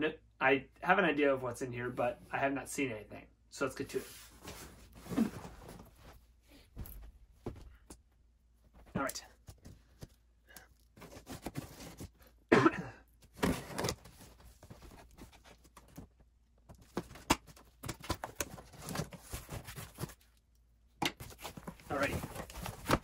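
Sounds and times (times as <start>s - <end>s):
cardboard flaps rustling: 11.0s - 12.3s, 13.3s - 16.1s, 16.7s - 20.2s, 21.2s - 23.0s.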